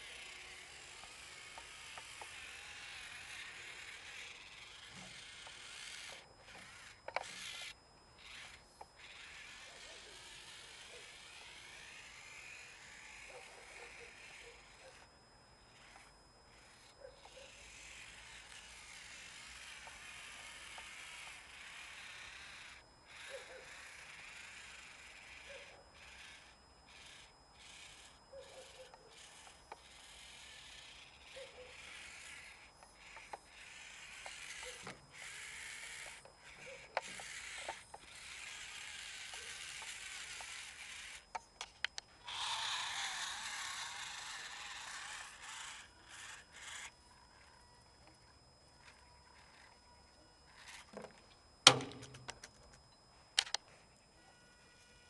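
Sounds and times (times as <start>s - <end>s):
small electric motor whirring: 0.0s - 55.0s
sharp clicks: 53.4s - 53.7s.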